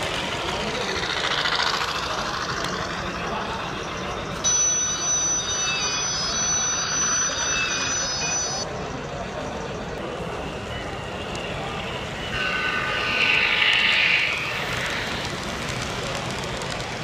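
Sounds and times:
model train wheels rattling on rail: 0:00.0 - 0:03.9, 0:12.0 - 0:17.0
high thin steady tone: 0:01.8 - 0:09.1, 0:10.2 - 0:15.4.

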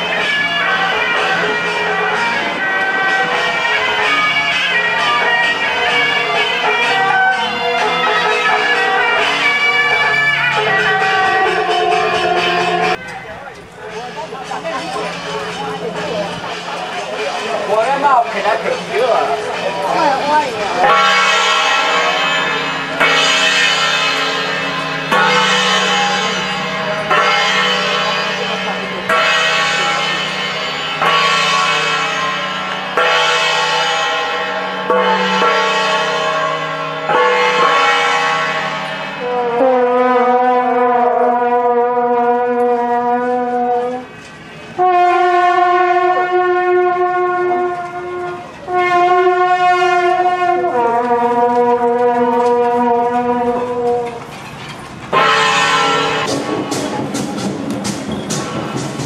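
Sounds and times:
shawm playing long notes: 0:44.8 - 0:54.2
struck gong ringing: 0:55.1 - 0:59.0.

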